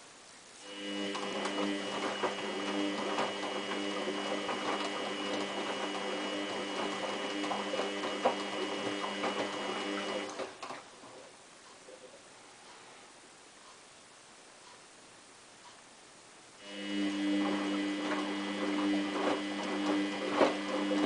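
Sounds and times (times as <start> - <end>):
washing machine motor whining: 0.6 - 11.3, 16.6 - 21.0
sloshing and clicking in drum: 1.1 - 12.0, 17.3 - 21.0.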